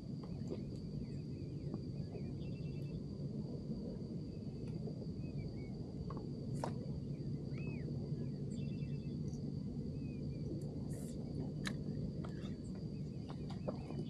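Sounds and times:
high insect-like whine: 0.0s - 14.0s
low hum: 0.0s - 14.0s
bird chirps: 7.1s - 9.4s.

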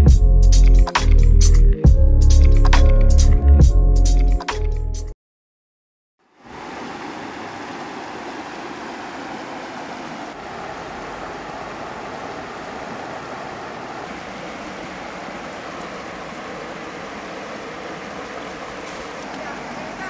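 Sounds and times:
river rushing over rocky rapids: 6.4s - 20.0s.

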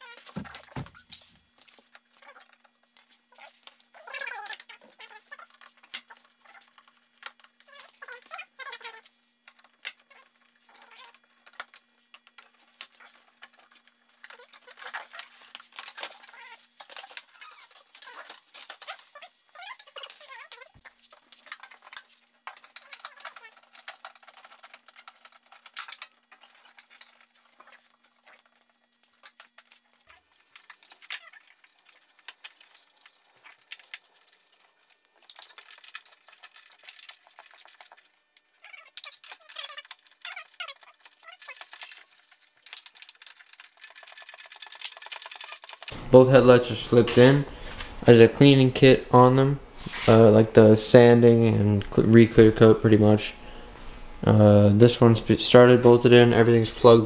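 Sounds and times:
plastic parts clicking and rattling: 0.0s - 46.0s
faint steady hum: 45.8s - 57.0s.

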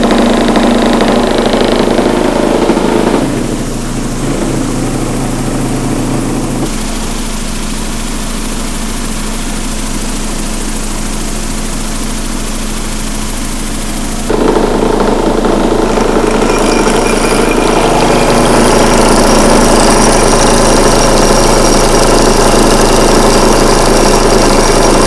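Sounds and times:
vibratory tumbler humming: 0.0s - 25.0s
media churning in bowl: 14.2s - 25.0s.

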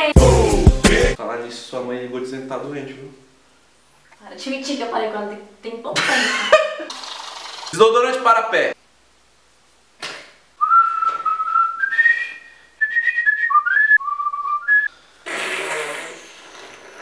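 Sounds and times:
man whistling a tune: 10.6s - 14.9s.

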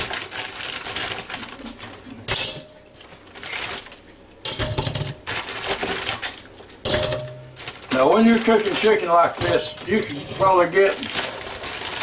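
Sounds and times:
plastic bag rustling: 0.0s - 12.0s
frozen chicken clunking into metal basket: 4.5s - 12.0s.

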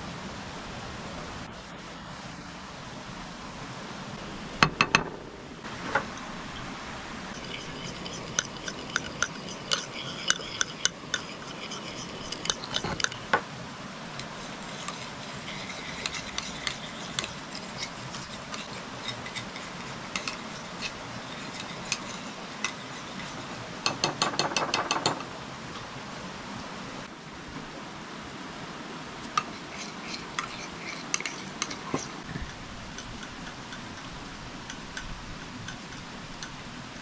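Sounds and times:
utensils clinking against dishes: 7.3s - 13.2s.

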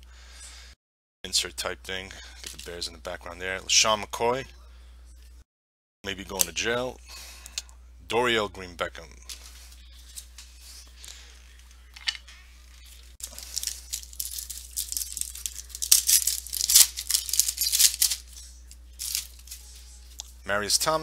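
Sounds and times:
foil wrapper tearing and crinkling: 13.2s - 19.6s.

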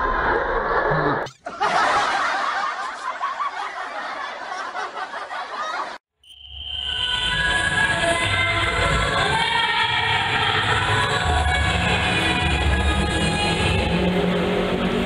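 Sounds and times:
group of people laughing and talking: 1.4s - 6.0s.

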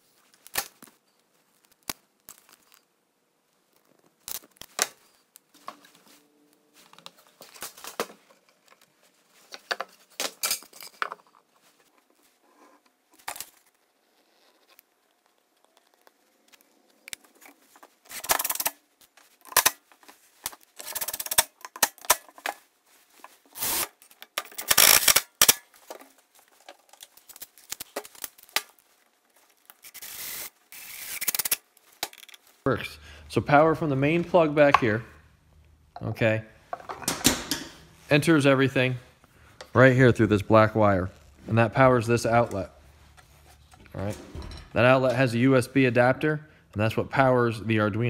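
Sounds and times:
tool and handling noise: 3.7s - 32.7s, 36.7s - 38.1s, 42.2s - 45.3s
snips cutting plastic: 23.6s - 25.7s.

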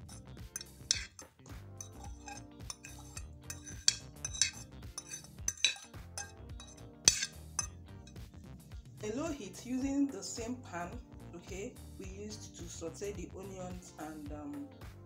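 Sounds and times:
fork scraping ceramic plate: 0.0s - 8.2s.

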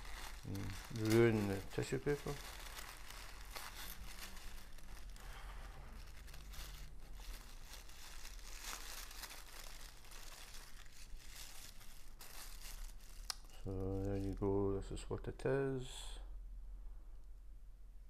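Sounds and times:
tissue paper tearing and rustling: 0.0s - 14.4s.

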